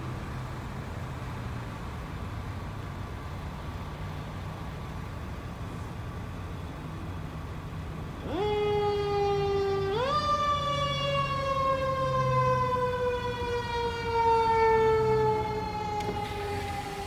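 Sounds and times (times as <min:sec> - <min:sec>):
emergency vehicle siren: 0:06.1 - 0:17.0.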